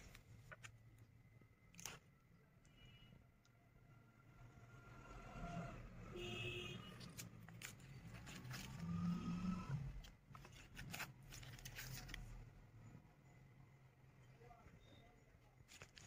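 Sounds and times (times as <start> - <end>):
paper card rustling: 0.0 - 2.4, 6.9 - 9.3, 10.0 - 12.6, 15.4 - 16.0.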